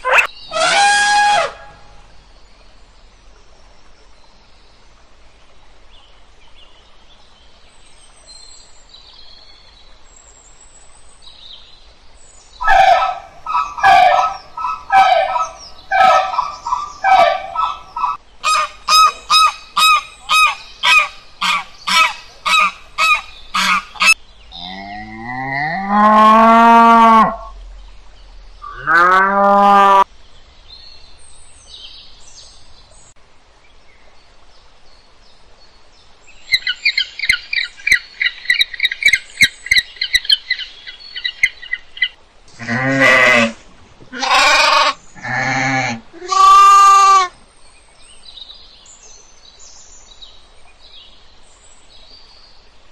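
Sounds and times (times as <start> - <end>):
geese honking: 0.0 - 1.8, 12.6 - 24.2
goats bleating: 42.6 - 47.3
long drawn-out animal calls: 44.2 - 47.4.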